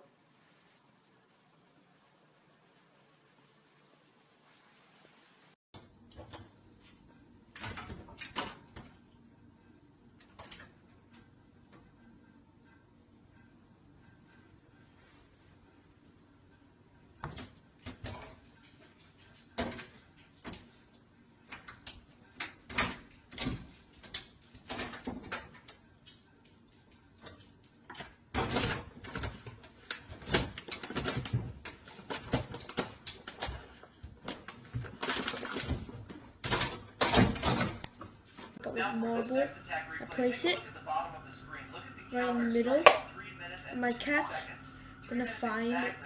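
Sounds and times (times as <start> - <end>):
packet rustling: 30.0 - 36.8.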